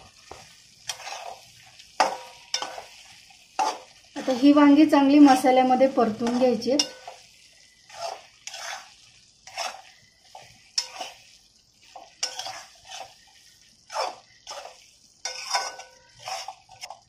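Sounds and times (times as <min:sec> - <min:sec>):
metal utensil scraping pan: 0:00.2 - 0:17.0.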